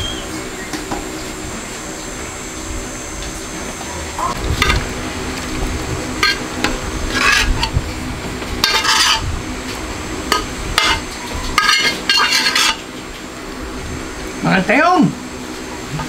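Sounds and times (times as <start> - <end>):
low hum: 0.0 - 16.0
spoon scraping metal pot: 6.2 - 6.4, 7.1 - 7.8, 8.6 - 9.2, 10.4 - 11.0, 11.6 - 12.8.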